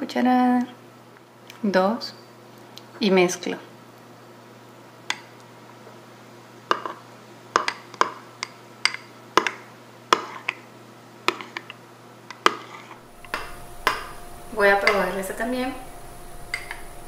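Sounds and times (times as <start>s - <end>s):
metal spoon clinking glass bowl: 16.5s - 16.8s.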